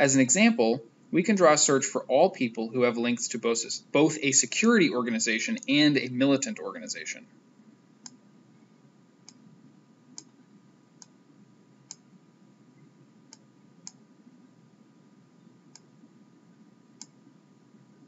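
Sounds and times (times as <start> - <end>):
faint low hum: 0.0 - 18.0
computer mouse clicking: 10.2 - 10.4, 15.7 - 15.9, 17.0 - 17.2.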